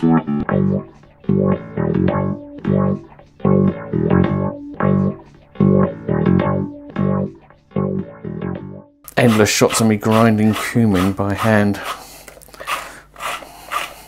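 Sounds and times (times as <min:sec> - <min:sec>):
instrumental music: 0:00.0 - 0:10.0.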